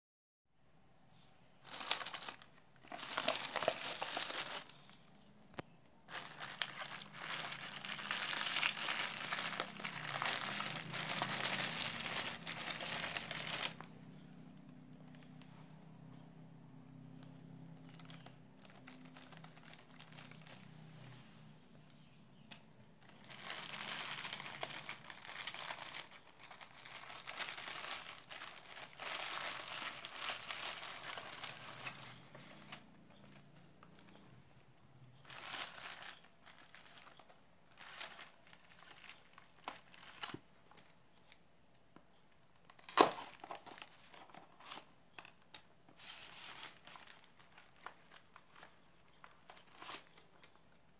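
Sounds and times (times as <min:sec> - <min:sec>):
plastic and paper crinkling: 0:01.6 - 0:05.1, 0:06.1 - 0:13.9, 0:17.8 - 0:20.9, 0:23.0 - 0:34.4, 0:35.0 - 0:41.4, 0:42.4 - 0:50.9.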